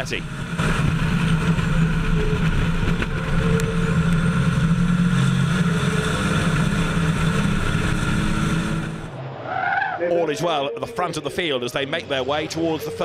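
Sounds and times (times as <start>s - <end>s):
diesel truck engine at high revs: 0.0s - 9.2s.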